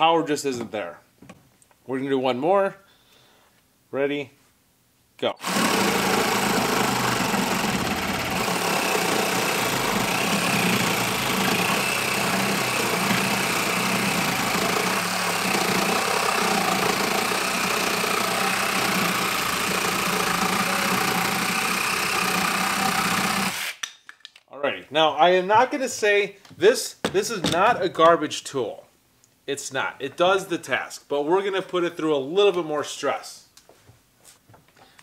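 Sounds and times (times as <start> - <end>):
reciprocating saw cutting wood: 5.4 - 23.8.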